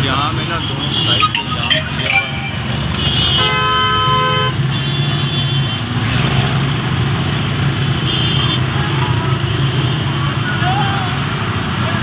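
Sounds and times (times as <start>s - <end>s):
vehicle horn honking: 2.9s - 4.6s.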